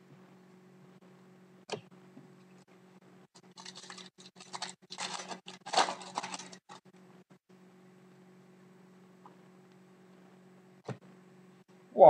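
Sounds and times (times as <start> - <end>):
foil pack tearing and crinkling: 3.5 - 6.8.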